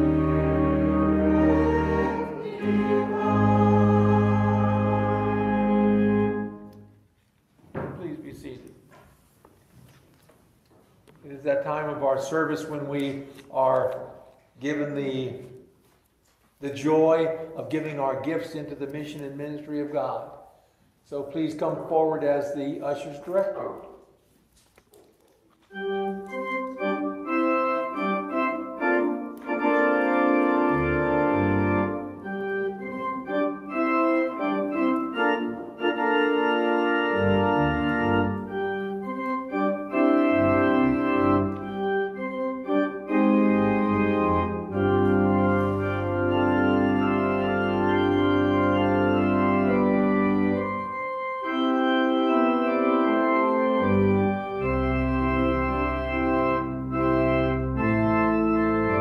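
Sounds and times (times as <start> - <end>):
deep organ bass pedal notes: 0.0 - 6.8, 25.8 - 59.0
organ playing sustained chords: 0.0 - 7.1, 25.6 - 59.0.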